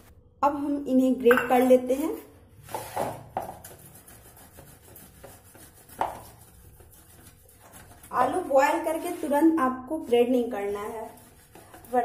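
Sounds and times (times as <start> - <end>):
potato scraping on grater: 3.6 - 12.0.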